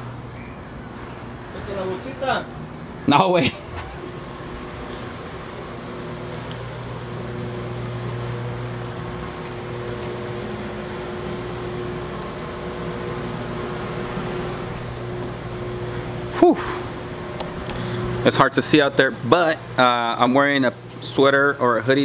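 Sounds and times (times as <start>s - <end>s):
steady mechanical hum: 0.0s - 22.0s.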